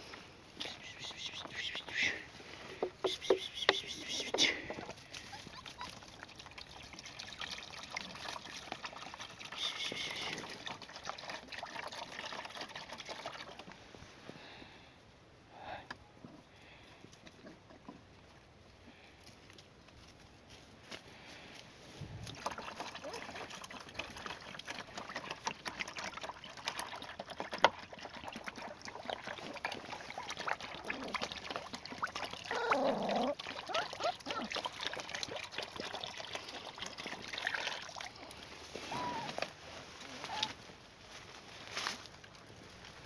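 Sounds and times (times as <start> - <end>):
puppies lapping: 0.6 - 13.8, 22.2 - 38.8
rustling in dry leaves: 3.9 - 6.2, 18.6 - 22.3, 38.0 - 43.0.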